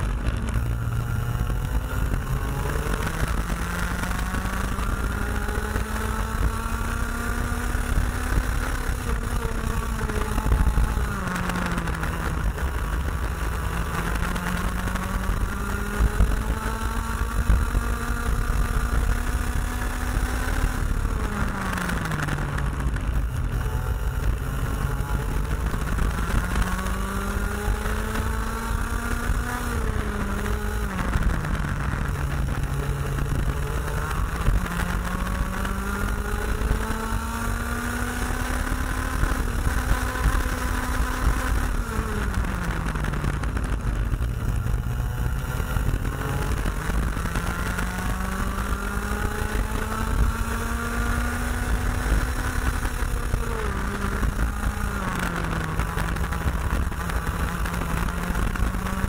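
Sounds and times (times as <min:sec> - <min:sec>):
steady low rumble: 0:00.0 - 0:05.7, 0:39.4 - 0:50.4
kart engine at racing speed: 0:00.0 - 0:59.0.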